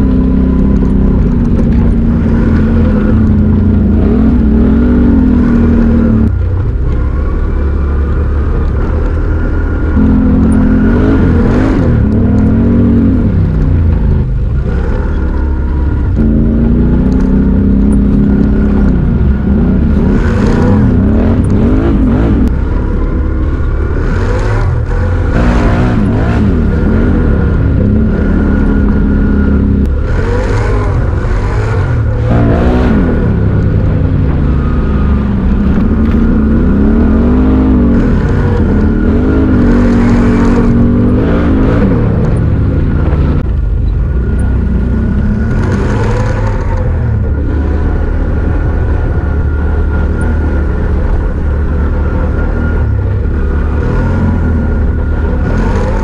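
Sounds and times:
atv engine revving: 0.0 - 56.0.

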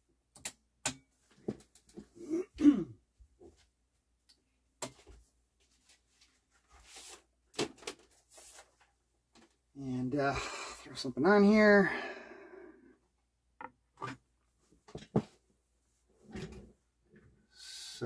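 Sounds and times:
person clearing throat: 2.2 - 3.0.

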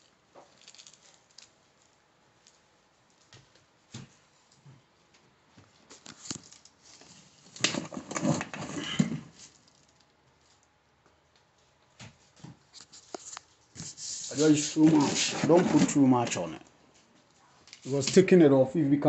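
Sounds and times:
rustling and rubbing: 5.9 - 9.6, 12.2 - 16.6.

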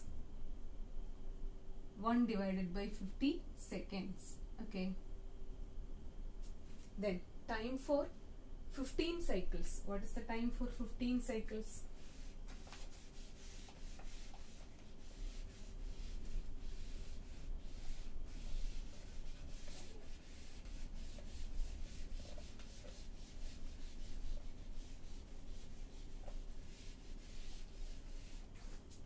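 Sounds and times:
duster scrubbing whiteboard: 11.4 - 29.0.

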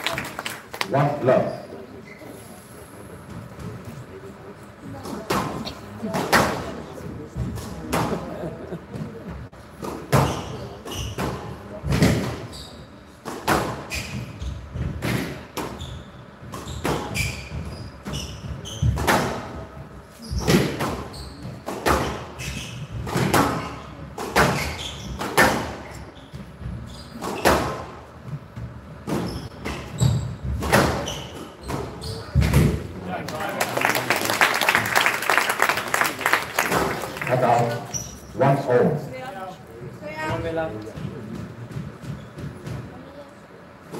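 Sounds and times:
shoes squeaking: 9.0 - 14.9, 15.6 - 19.3, 20.1 - 32.7, 36.6 - 38.8, 39.4 - 43.2
squash ball hits echoing: 29.1 - 32.8.

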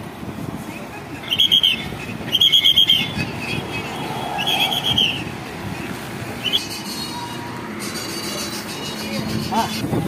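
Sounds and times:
low hum of road traffic: 0.0 - 10.0
pea whistle warbling blast: 1.3 - 5.2.

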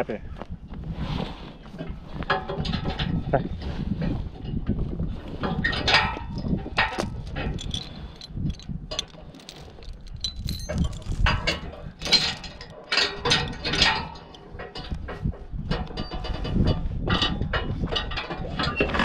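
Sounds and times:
metal chain rattling: 5.4 - 18.9.

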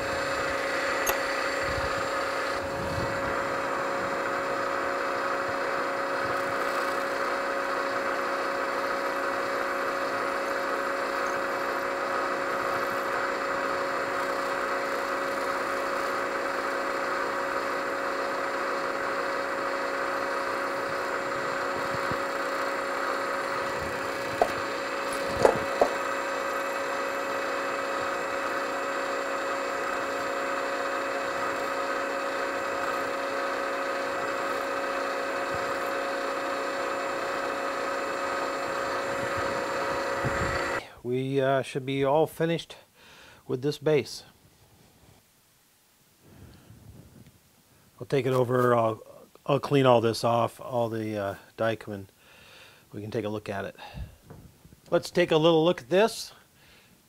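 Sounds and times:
milling machine drilling: 0.0 - 40.8
sharp clicks: 1.0 - 1.4.

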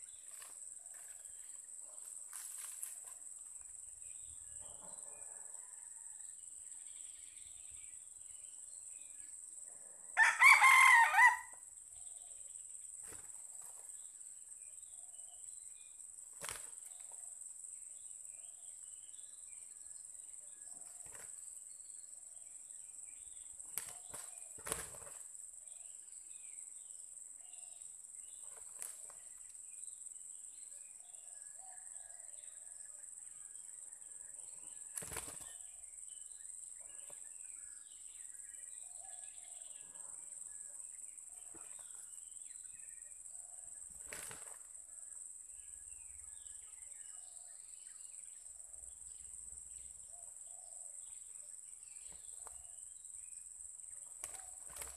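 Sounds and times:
rooster crowing: 10.2 - 11.6.

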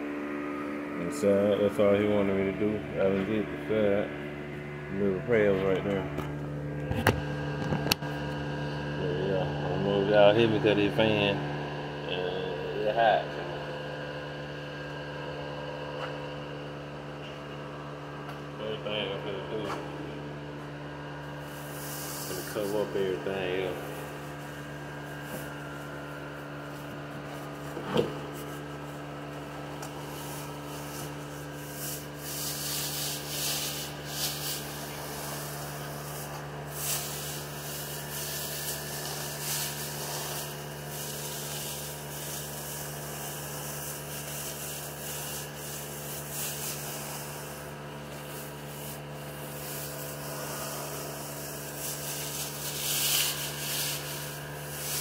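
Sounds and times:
fan humming: 0.0 - 55.0
sanding car bodywork: 21.4 - 28.9, 30.0 - 55.0.

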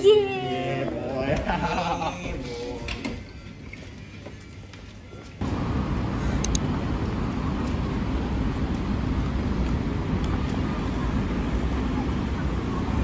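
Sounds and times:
passing traffic rumble: 5.4 - 13.0.

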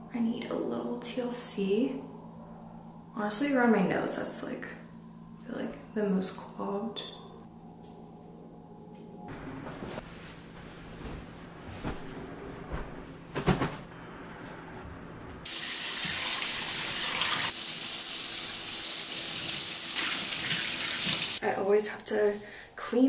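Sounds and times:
bedding rustling and thumping: 9.3 - 15.4
faucet running into metal sink: 15.5 - 21.4.

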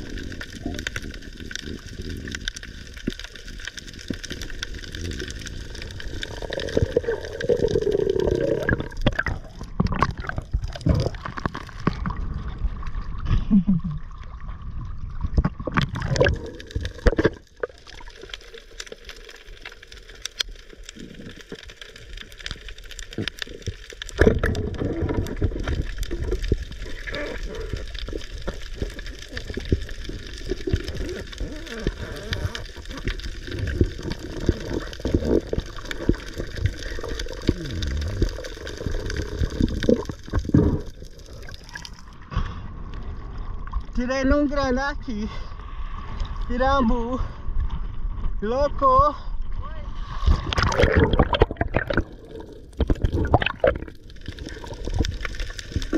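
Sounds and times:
water gurgling and churning: 0.0 - 20.0, 20.7 - 43.9, 49.9 - 55.9.

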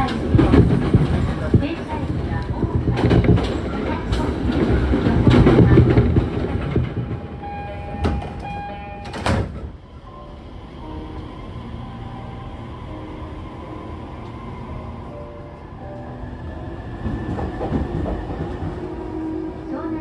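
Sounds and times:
clacks over rail joints: 0.0 - 7.4, 17.0 - 19.0
train running on rails: 0.0 - 20.0
train whine: 0.0 - 20.0.

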